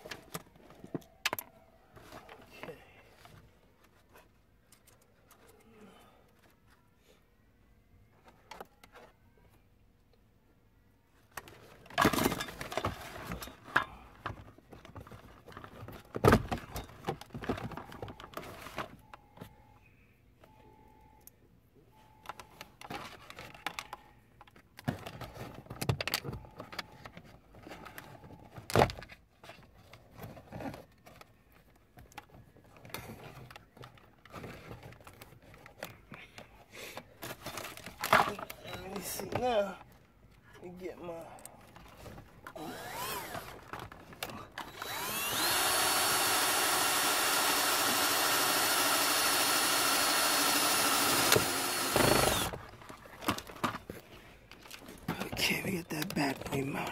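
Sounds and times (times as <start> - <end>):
faint beep: 19.0 - 22.7
rustling and clicking of connectors: 22.2 - 40.6, 51.1 - 55.4.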